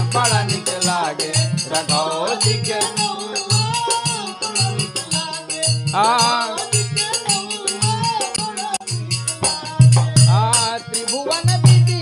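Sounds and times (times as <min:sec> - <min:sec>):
harmonium: 0:00.0 - 0:12.0
person singing: 0:00.0 - 0:12.0
low drum beats: 0:09.4 - 0:10.7.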